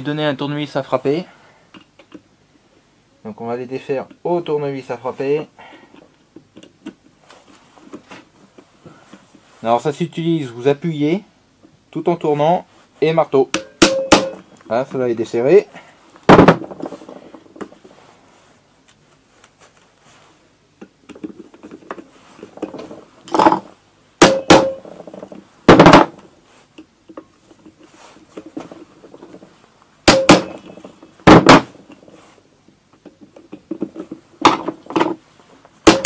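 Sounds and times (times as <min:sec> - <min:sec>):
hammer striking metal: 0:13.5 - 0:14.4, 0:24.2 - 0:24.8, 0:30.1 - 0:30.7.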